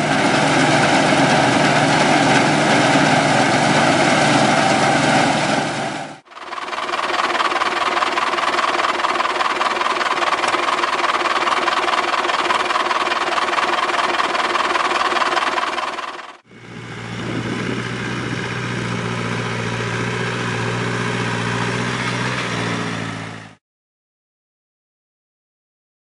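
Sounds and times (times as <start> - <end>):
tractor diesel engine running hard: 0.0 - 23.6
tractor engine running steadily: 0.0 - 23.6.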